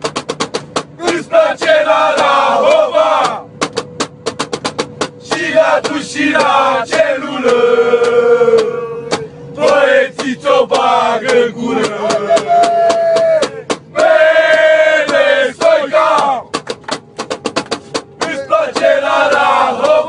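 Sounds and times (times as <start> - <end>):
sharp drum hits: 0.0 - 20.0
men chanting long notes: 1.0 - 3.5, 5.2 - 16.5, 18.2 - 20.0.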